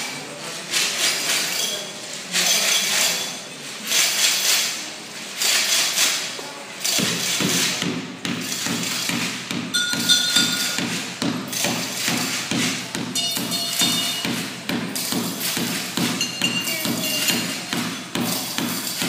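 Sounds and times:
glassy clink: 1.4 - 4.7, 9.7 - 11.9, 13.1 - 14.4, 15.0 - 19.0
thumping beat on household objects: 6.9 - 19.0.

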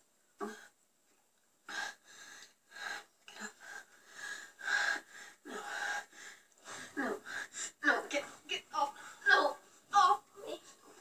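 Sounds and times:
heavy breathing with gasps: 1.6 - 7.9.

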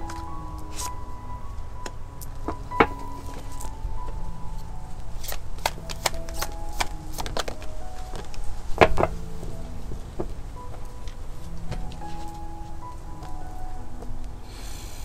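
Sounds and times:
soft background music: 0.0 - 15.0
cards being shuffled: 5.2 - 9.0.

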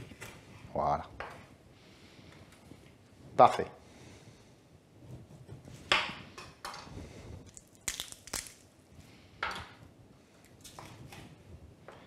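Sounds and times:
raw chicken cracking and squelching: 7.4 - 8.8.

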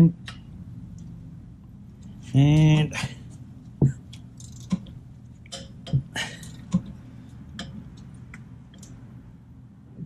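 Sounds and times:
wrench clicking: 4.4 - 4.9.

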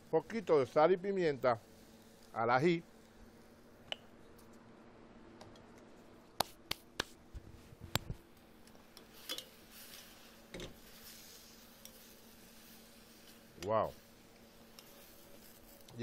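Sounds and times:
stirring peppers in pan: 7.5 - 16.0.

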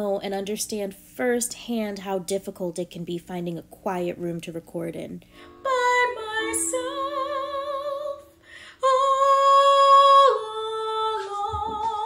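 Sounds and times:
woman singing with vibrato: 5.4 - 12.0.

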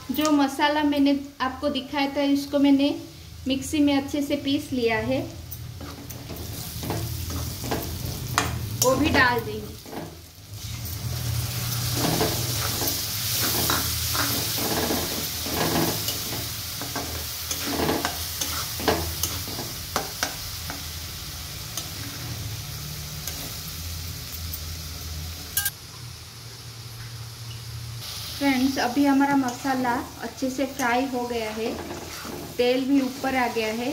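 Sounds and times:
onions sizzling in hot oil: 0.0 - 33.9
spatula stirring and scraping pan: 5.5 - 23.7, 29.2 - 33.9.

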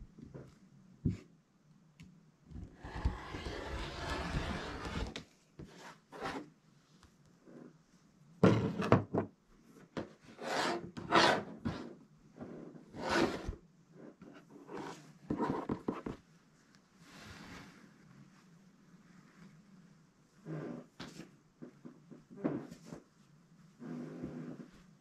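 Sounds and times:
fabric rustling and rubbing: 14.3 - 21.3.

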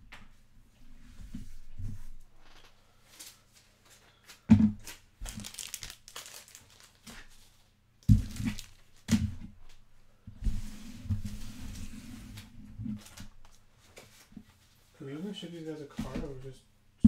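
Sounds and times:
packaging crinkling and rustling: 2.5 - 9.1.

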